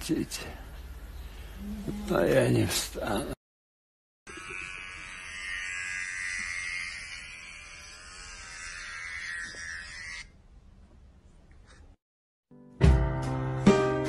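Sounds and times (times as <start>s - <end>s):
hair clipper buzz from phone speaker: 4.3s - 10.3s.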